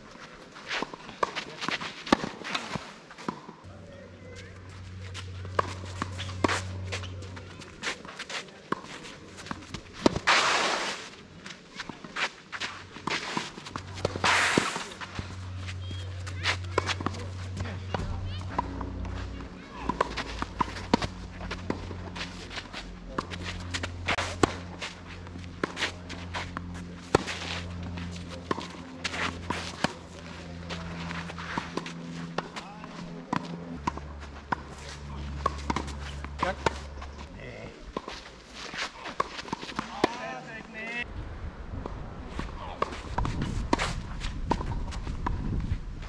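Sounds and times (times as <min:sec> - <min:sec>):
footsteps on court: 0:00.1 - 0:03.6, 0:04.2 - 0:41.0
tennis ball hitting racket: 0:00.7 - 0:03.5, 0:05.4 - 0:11.0, 0:11.7 - 0:37.1, 0:37.9 - 0:40.2, 0:42.8 - 0:45.0
brief rushing hiss: 0:10.3 - 0:11.0.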